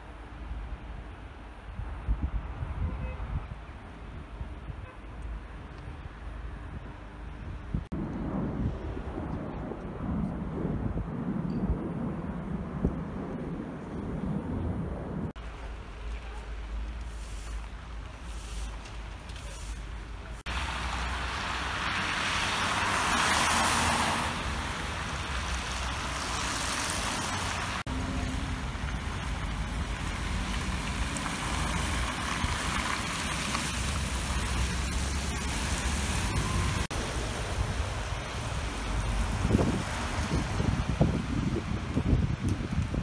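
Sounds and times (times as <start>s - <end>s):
cars passing: 15.2s - 42.5s.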